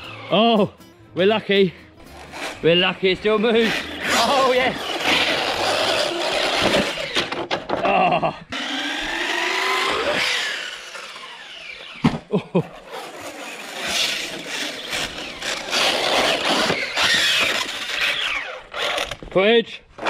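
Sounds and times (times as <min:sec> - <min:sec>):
electric motor whining: 0:00.0 - 0:00.4, 0:03.3 - 0:07.7, 0:08.5 - 0:12.2, 0:12.8 - 0:19.2
drivetrain crunching: 0:02.2 - 0:19.4.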